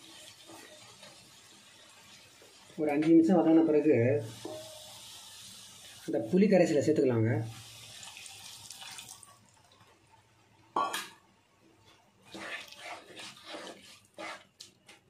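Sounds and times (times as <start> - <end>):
spatula scraping pan: 0.1 - 1.2, 12.2 - 14.8
liquid pouring into pan: 7.6 - 9.8.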